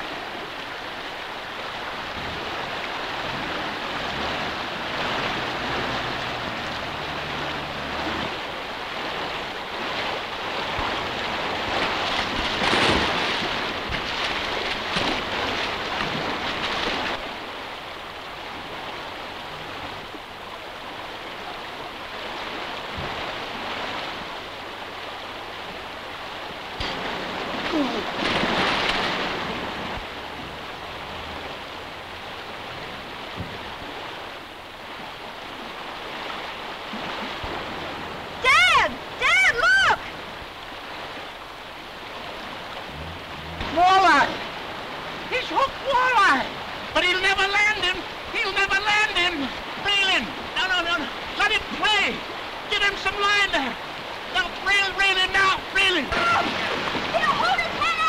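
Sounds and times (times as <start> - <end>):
stream rushing over rocks: 0.0 - 58.0
person splashing through water: 2.3 - 17.4, 26.7 - 34.2, 56.1 - 58.0.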